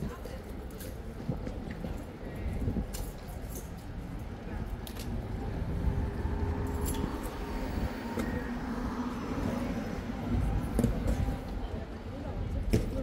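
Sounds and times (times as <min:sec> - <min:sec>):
steady low rumble: 0:03.8 - 0:12.7.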